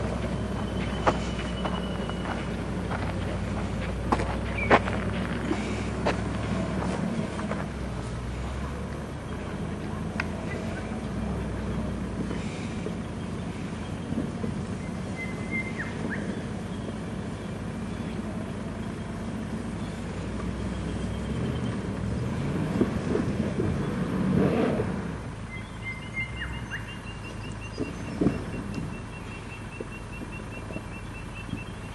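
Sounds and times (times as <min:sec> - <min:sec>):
engine running at low revs: 0:00.0 - 0:31.9
bird whistling: 0:14.8 - 0:16.4, 0:25.5 - 0:31.9.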